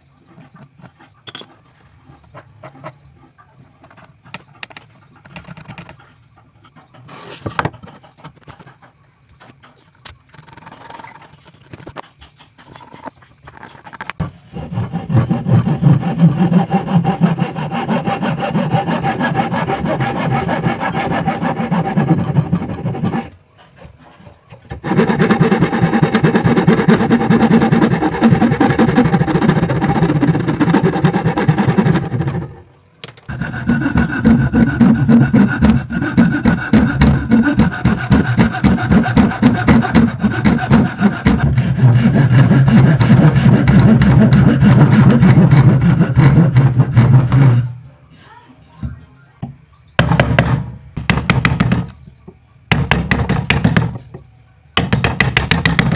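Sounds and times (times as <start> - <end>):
hand saw cutting wood: 13.6 - 23.4, 24.6 - 32.6, 33.3 - 47.8.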